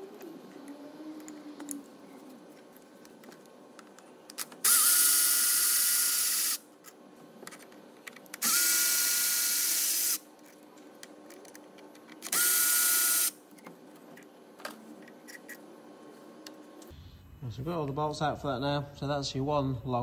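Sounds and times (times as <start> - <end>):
power tool motor whine: 4.6 - 6.6, 8.4 - 10.2, 12.3 - 13.4.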